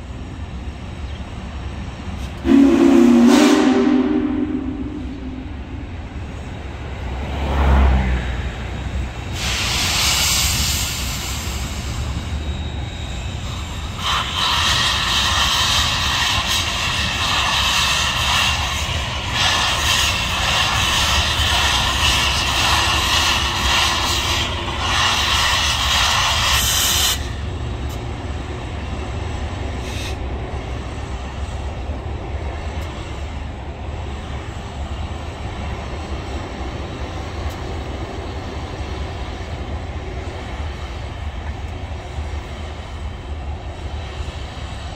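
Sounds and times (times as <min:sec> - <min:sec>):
steam locomotive rumbling past: 0:00.0 - 0:44.9
steam whistle long blasts: 0:02.4 - 0:05.6.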